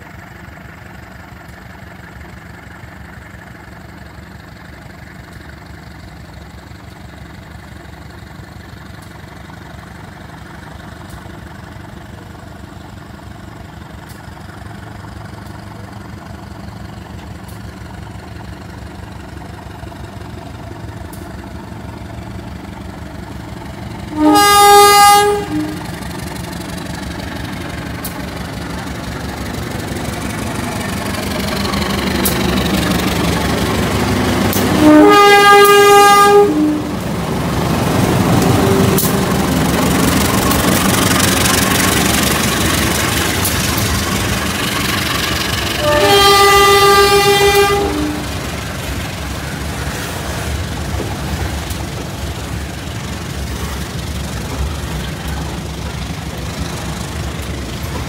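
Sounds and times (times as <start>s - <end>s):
locomotive engine running: 0.0s - 58.0s
locomotive horn: 23.8s - 26.2s, 32.2s - 40.9s, 45.6s - 50.4s.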